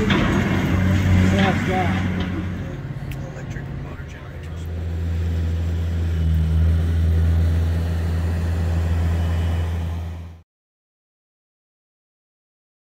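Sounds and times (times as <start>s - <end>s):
machinery humming: 0.0s - 10.4s.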